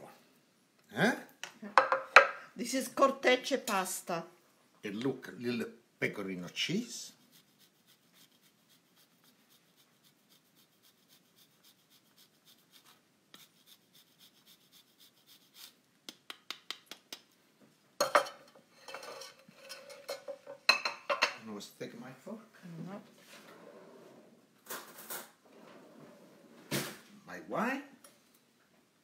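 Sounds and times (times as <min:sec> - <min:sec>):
cheese grating scrapes: 0:06.5 - 0:15.8.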